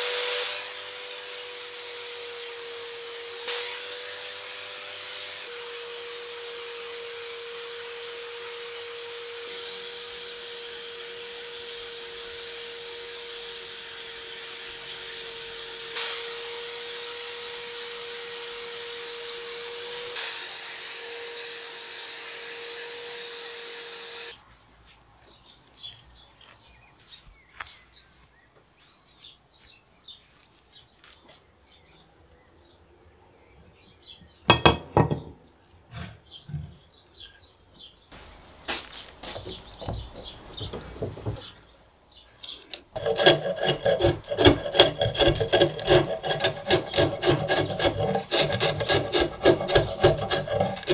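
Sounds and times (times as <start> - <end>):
log knocking on wooden bench: 39.3 - 41.6.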